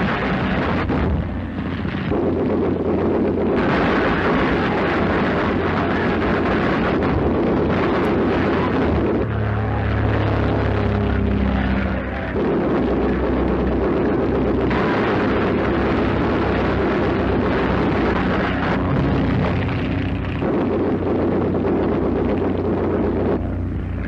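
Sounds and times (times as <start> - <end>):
biplane engine drone: 0.0 - 24.0.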